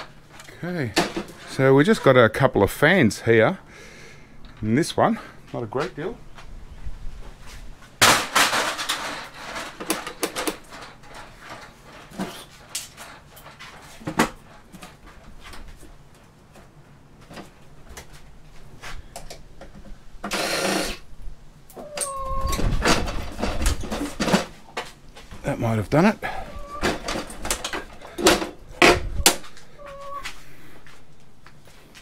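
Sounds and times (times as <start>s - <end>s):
short falling squeak: 21.8s - 22.8s.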